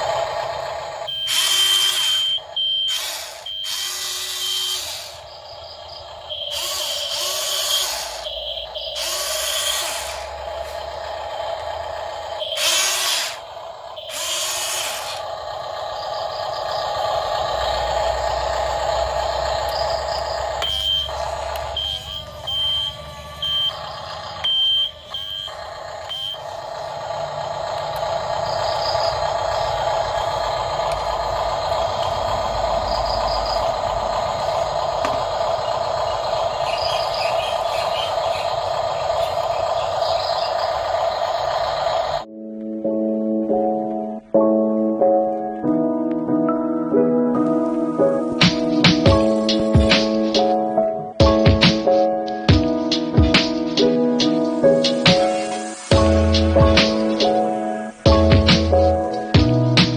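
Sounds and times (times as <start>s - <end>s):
electric motors whirring: 0.0s - 42.3s
steady hum: 0.0s - 42.3s
short high beeps: 20.6s - 21.1s.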